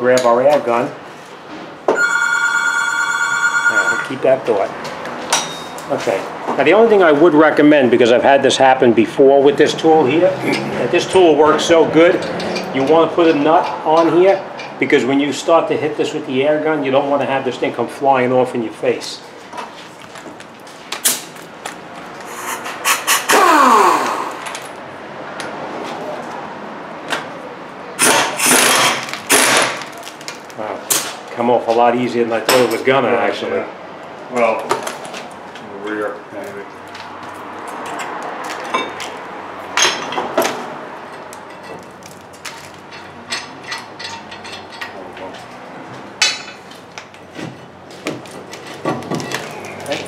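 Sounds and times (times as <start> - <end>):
pneumatic impact wrench whining: 28.0 - 29.6.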